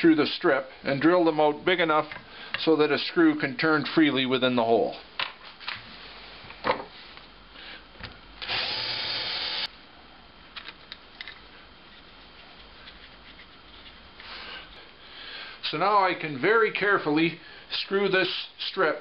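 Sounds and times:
cordless drill drilling wood: 0:08.4 - 0:09.7.

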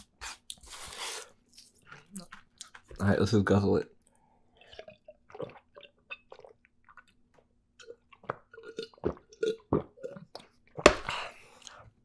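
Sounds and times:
person gulping a drink: 0:04.5 - 0:11.8.

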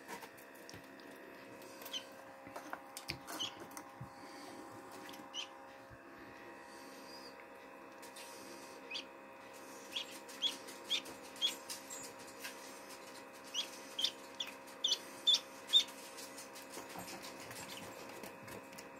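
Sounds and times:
incubator hum: 0:00.0 - 0:18.9
duckling peeping: 0:01.8 - 0:02.1, 0:03.4 - 0:03.6, 0:05.3 - 0:05.5, 0:08.9 - 0:09.1, 0:09.8 - 0:11.6, 0:13.5 - 0:16.0.

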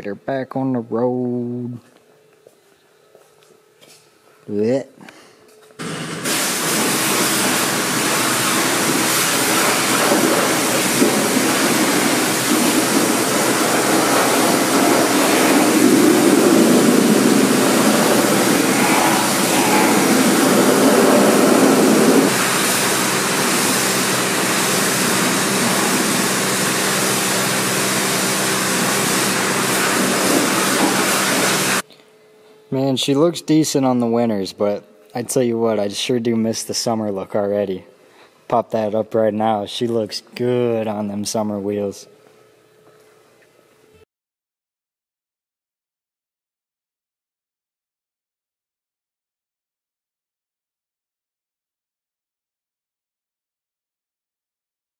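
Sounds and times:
pressure washer motor hum: 0:05.8 - 0:31.8
water jet spraying car: 0:05.8 - 0:31.8.

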